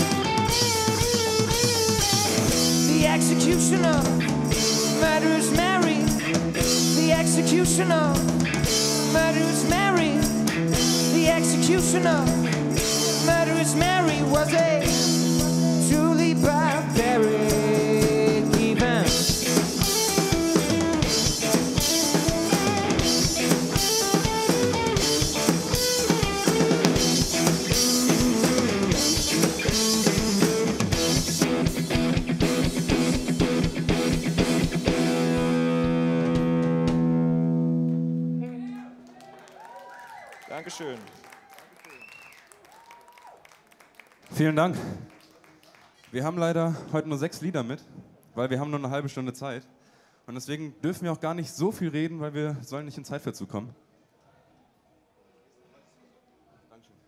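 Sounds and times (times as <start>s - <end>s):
drum kit beat: 0.0s - 37.2s
electric guitar lead: 0.0s - 39.1s.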